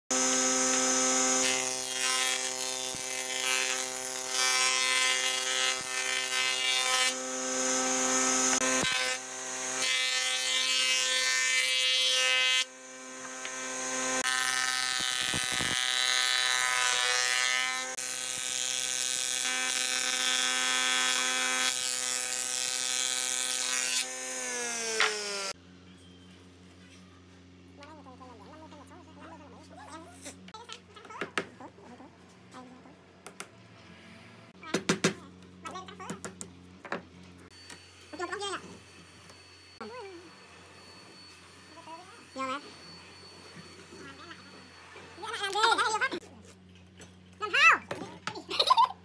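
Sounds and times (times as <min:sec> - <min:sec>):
planer cutting boards: 0:00.1 - 0:25.6
planer whining: 0:00.1 - 0:25.6.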